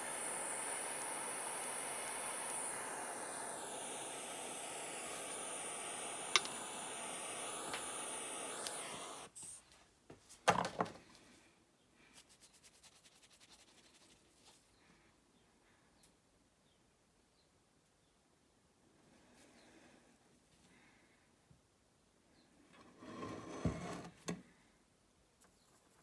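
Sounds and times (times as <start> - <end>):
gas torch hissing: 0.0 - 9.6.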